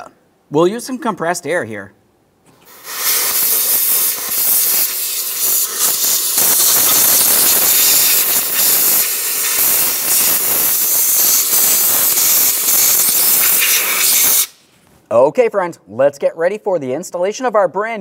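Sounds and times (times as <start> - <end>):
compressed air hissing: 2.5 - 14.7.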